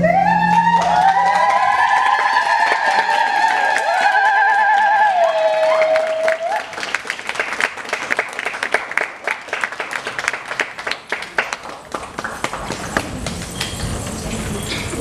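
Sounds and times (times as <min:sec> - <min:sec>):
audience applause: 0:00.5 - 0:15.0.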